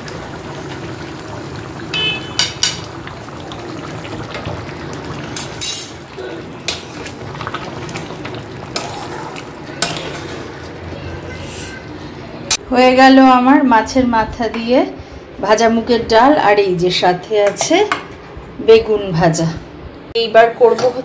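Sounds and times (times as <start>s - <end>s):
thick food bubbling: 0.0s - 11.3s.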